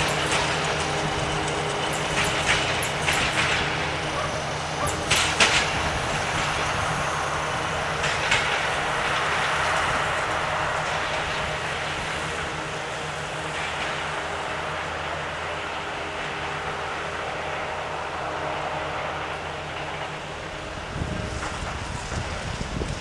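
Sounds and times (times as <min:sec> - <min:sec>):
sharp wheel clacks: 0:00.0 - 0:04.2, 0:04.8 - 0:05.8
train rolling past: 0:00.0 - 0:23.0.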